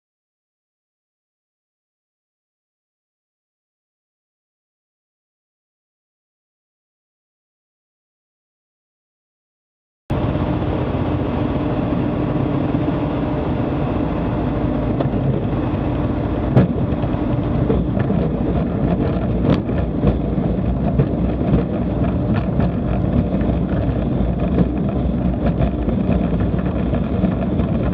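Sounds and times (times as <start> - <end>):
propeller aircraft engine: 10.1 - 27.9.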